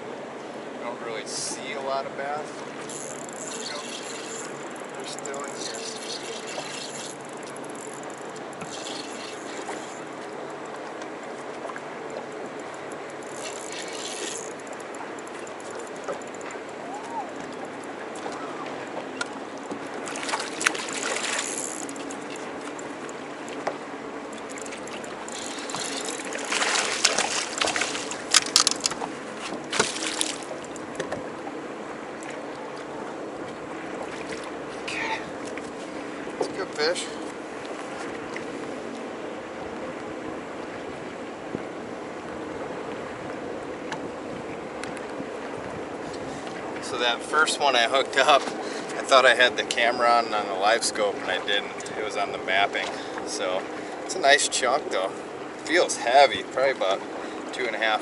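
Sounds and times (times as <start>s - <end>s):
water lapping against boat hull: 0.0s - 58.0s
fish splashing at water surface: 20.0s - 22.5s, 24.4s - 30.7s
wind noise: 45.4s - 46.6s.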